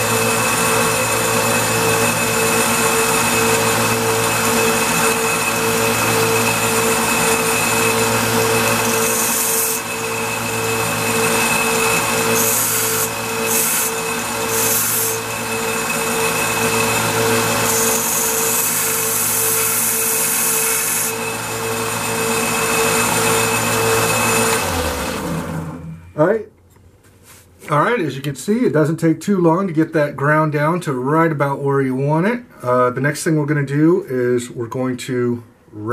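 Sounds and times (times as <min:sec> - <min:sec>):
belt grinder motor running: 0:00.0 - 0:26.0
motor running down: 0:00.0 - 0:26.0.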